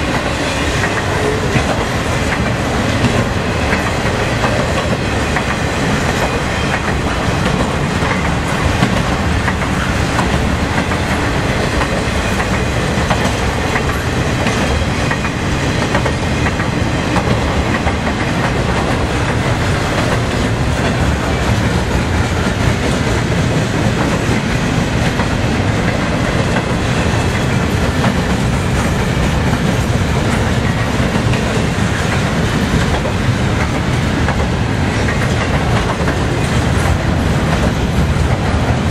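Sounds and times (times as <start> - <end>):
train wheels rumbling on rail: 0.0 - 38.9.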